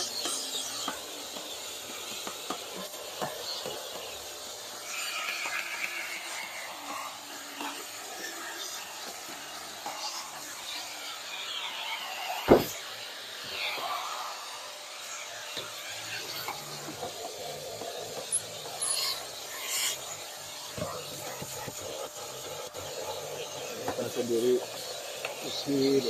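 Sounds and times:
vacuum cleaner running: 0:00.0 - 0:26.0
car door thud: 0:12.5 - 0:12.7.

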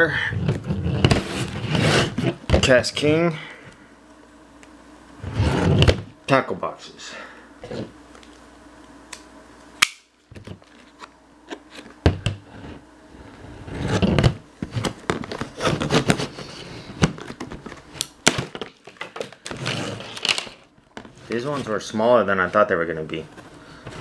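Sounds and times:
rustling and scraping: 0:00.4 - 0:02.7, 0:05.2 - 0:06.1, 0:10.4 - 0:18.0, 0:18.8 - 0:22.7.

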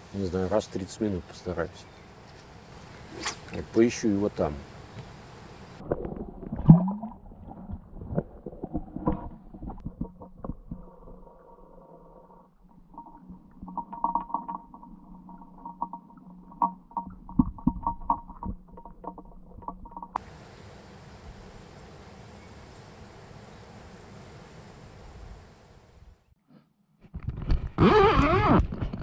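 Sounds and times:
underwater clicks and knocks: 0:05.8 - 0:10.9, 0:12.7 - 0:20.2.

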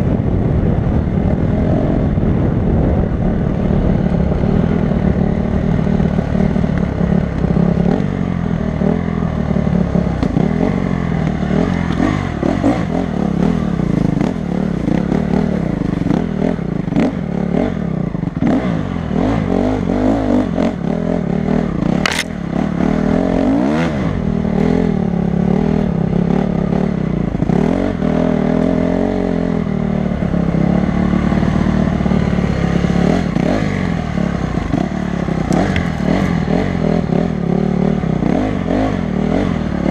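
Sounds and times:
dirt bike engine revving: 0:08.8 - 0:39.9
sharp crack: 0:22.0 - 0:22.4.

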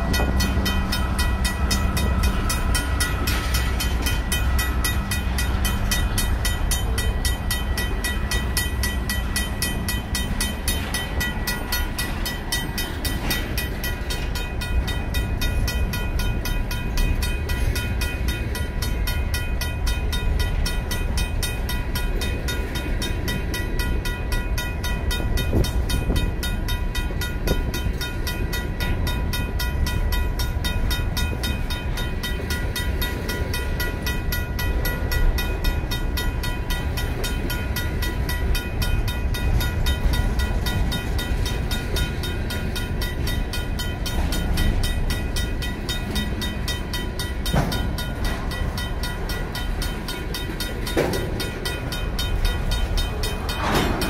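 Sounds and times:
crossing bell ringing: 0:00.0 - 0:54.0
freight train rolling on rails: 0:00.0 - 0:54.0.

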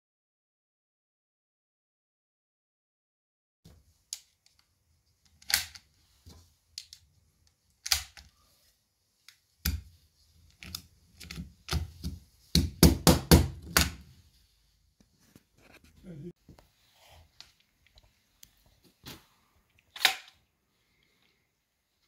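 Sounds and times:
cartridges clicking into magazine: 0:19.9 - 0:20.4.

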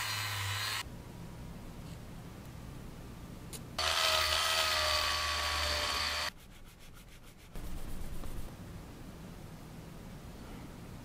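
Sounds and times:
plastic rubbed on sandpaper: 0:06.3 - 0:08.5.

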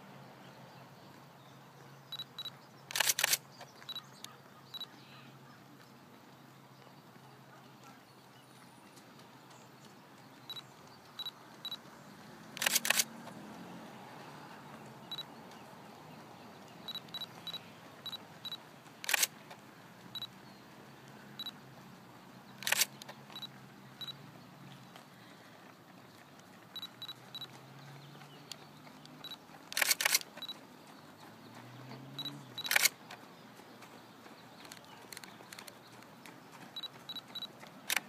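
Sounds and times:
camera shutter clacks: 0:02.2 - 0:03.5, 0:12.6 - 0:13.1, 0:19.0 - 0:19.4, 0:22.6 - 0:23.5, 0:29.3 - 0:30.6, 0:32.2 - 0:33.0, 0:36.8 - 0:38.0.

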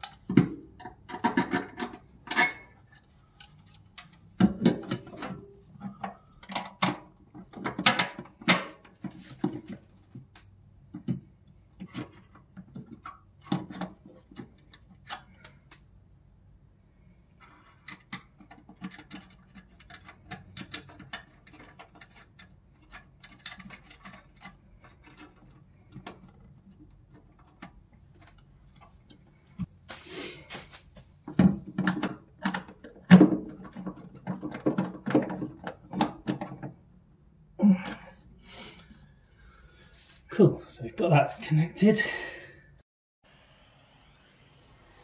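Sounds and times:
knocks and rattles: 0:31.2 - 0:36.8.

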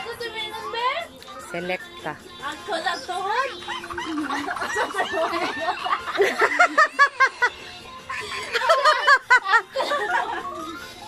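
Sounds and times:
woman laughing: 0:03.4 - 0:10.7.

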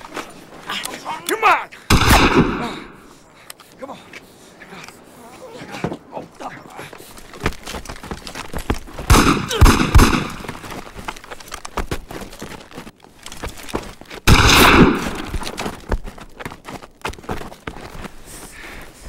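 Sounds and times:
burst of gunfire: 0:01.9 - 0:03.0, 0:09.1 - 0:10.5, 0:14.3 - 0:15.3
gunfire shots: 0:01.9 - 0:03.1, 0:09.1 - 0:10.6, 0:14.3 - 0:15.3.

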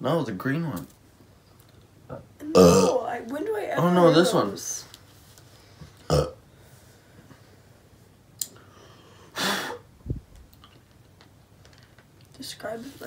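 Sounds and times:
person's sharp breath: 0:08.6 - 0:09.8.

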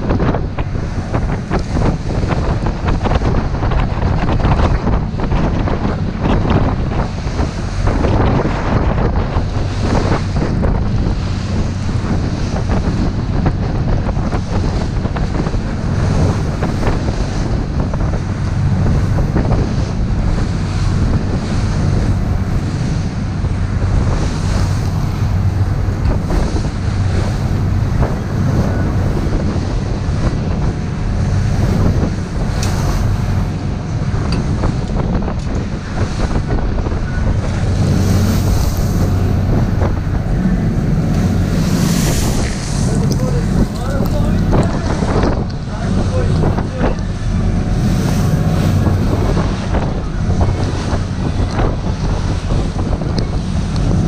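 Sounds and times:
boat engine drone: 0:00.0 - 0:54.0
water splashing along hull: 0:00.0 - 0:54.0
wind buffeting microphone: 0:00.0 - 0:54.0.

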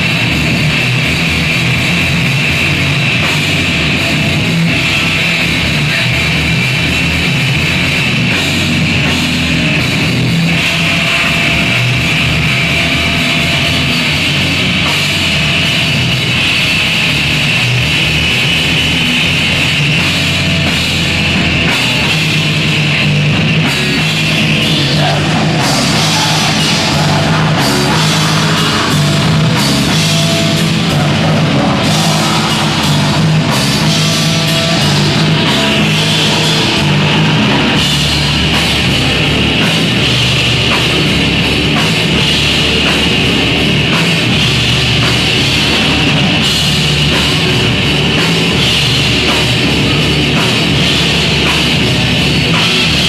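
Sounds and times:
black metal band playing live: 0:00.0 - 0:53.0
drum hits: 0:19.9 - 0:53.0.

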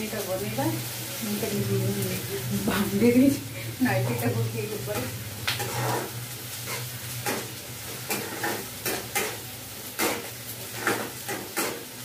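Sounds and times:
hot oil sizzling: 0:00.0 - 0:12.0
low hum: 0:01.0 - 0:08.1
spatula scraping pan: 0:04.0 - 0:11.9.

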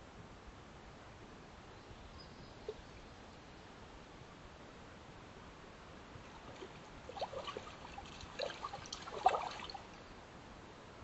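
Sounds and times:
water splashing: 0:06.2 - 0:10.0.

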